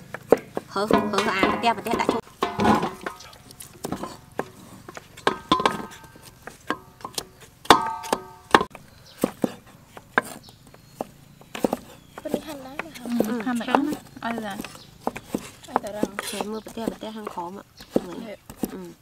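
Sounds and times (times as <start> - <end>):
cleaver chopping on wooden board: 0.0 - 18.9.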